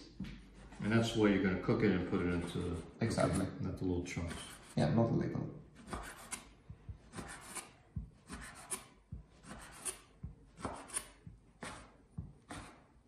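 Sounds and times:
knife slicing: 0:07.1 - 0:12.9.

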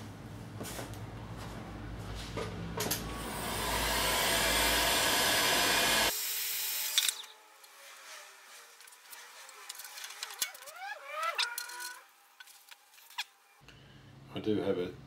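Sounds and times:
heat gun blowing air: 0:03.1 - 0:07.3.

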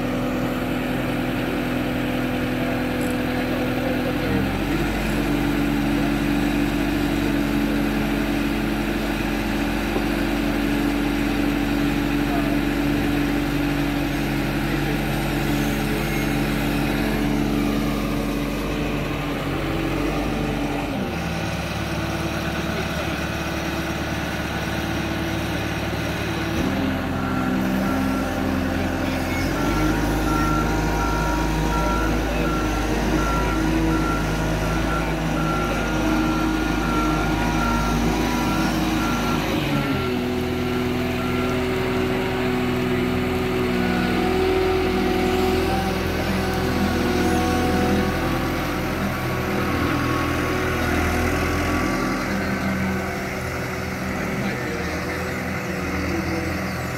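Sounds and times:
forklift engine running: 0:00.0 - 0:56.9
reversing alarm beeping: 0:10.1 - 0:56.6.

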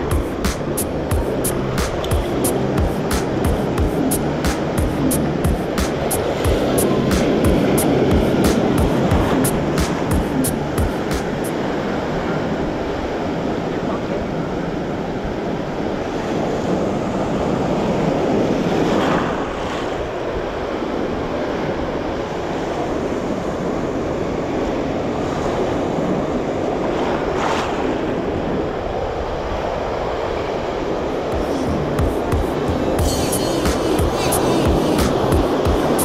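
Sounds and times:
surf breaking in shallows: 0:16.2 - 0:29.7.

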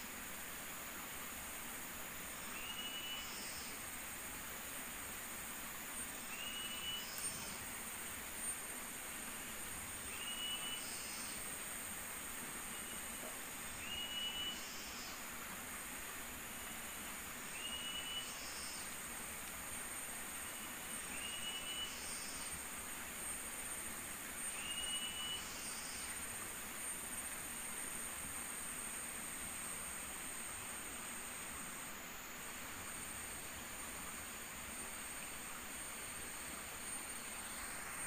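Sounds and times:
steady hiss: 0:00.0 - 0:38.0
short whistled bird call: 0:02.6 - 0:03.4, 0:06.4 - 0:07.2, 0:10.1 - 0:11.0, 0:13.8 - 0:14.8, 0:17.6 - 0:18.8, 0:21.2 - 0:22.1, 0:24.6 - 0:25.8.

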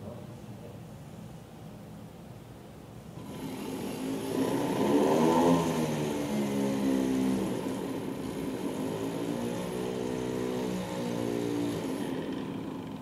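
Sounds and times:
electric starter whirring engine: 0:03.2 - 0:13.0.

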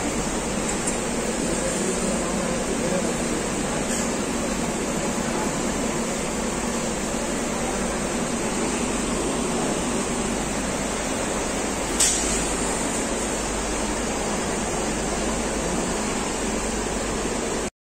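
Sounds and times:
sharp click: 0:12.0 - 0:12.4.

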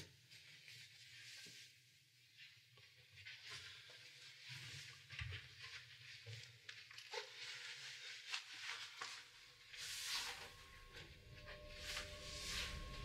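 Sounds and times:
low steady hum: 0:09.4 - 0:13.0.

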